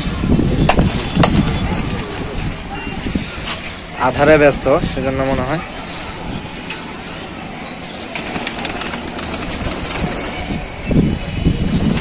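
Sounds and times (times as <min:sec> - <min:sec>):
pigeon wings flapping: 0:00.7 - 0:02.5, 0:08.1 - 0:10.5.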